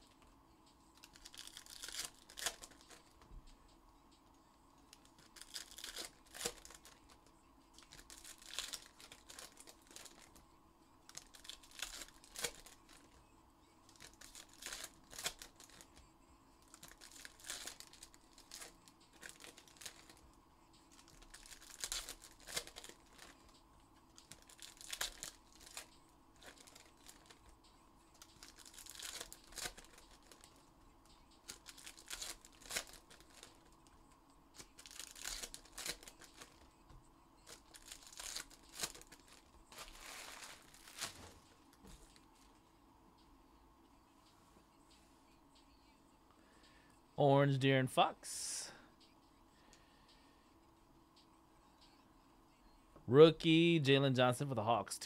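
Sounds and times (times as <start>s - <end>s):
card pack wrappers crinkling: 1.0s - 3.2s, 4.9s - 10.4s, 11.1s - 13.1s, 13.9s - 20.2s, 20.8s - 27.5s, 28.1s - 30.6s, 31.4s - 33.7s, 34.6s - 36.7s, 37.4s - 41.5s.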